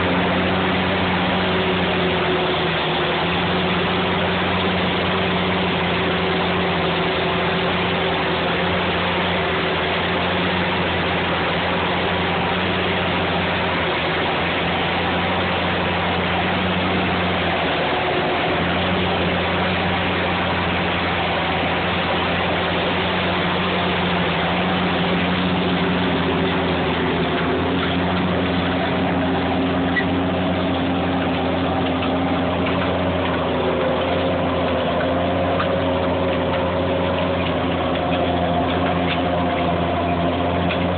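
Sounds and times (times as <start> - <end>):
continuous rushing noise: 0.0 - 40.9
tractor diesel engine under load: 0.0 - 40.9.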